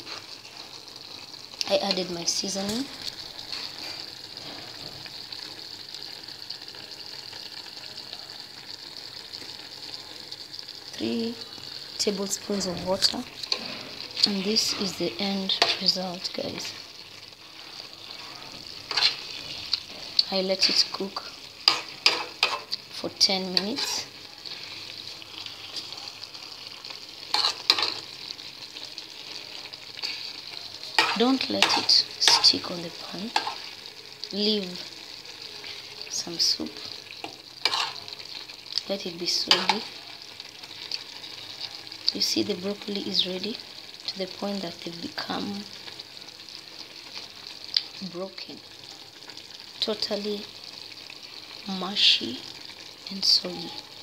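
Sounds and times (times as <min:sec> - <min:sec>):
sauce sizzling in a pan: 0:00.0 - 0:54.0
metal spoon scraping a pan: 0:12.4 - 0:16.0, 0:17.6 - 0:21.0, 0:21.6 - 0:22.8, 0:23.5 - 0:25.0, 0:27.3 - 0:28.1, 0:30.0 - 0:33.8, 0:37.2 - 0:38.2, 0:39.4 - 0:39.9.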